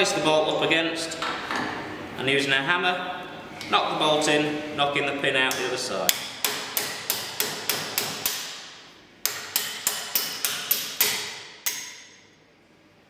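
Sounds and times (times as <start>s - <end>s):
hammer tapping steel bolt: 9.2s - 12.2s.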